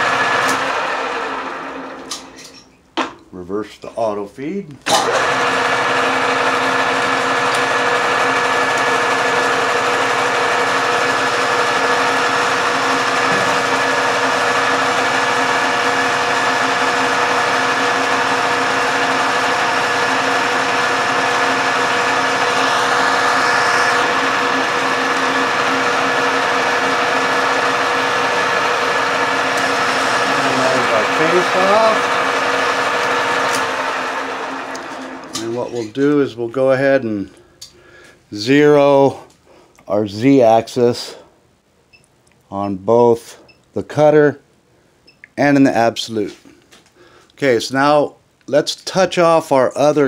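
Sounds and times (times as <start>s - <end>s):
metal lathe humming: 4.9s - 35.7s.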